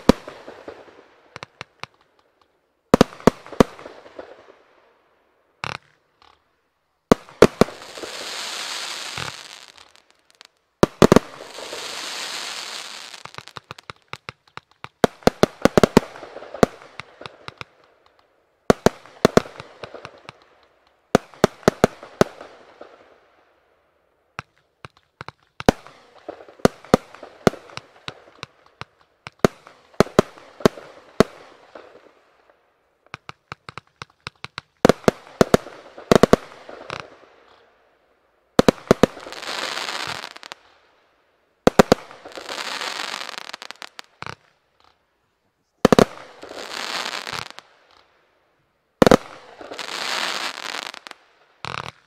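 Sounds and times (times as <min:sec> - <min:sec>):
fireworks crackling: 0:00.0 - 0:04.6, 0:05.6 - 0:23.2, 0:24.4 - 0:37.8, 0:38.6 - 0:40.9, 0:41.6 - 0:45.0, 0:45.7 - 0:48.2, 0:49.0 - 0:52.0
fireworks shots: 0:07.1 - 0:23.1, 0:33.1 - 0:37.7, 0:45.8 - 0:48.1, 0:49.0 - 0:52.0.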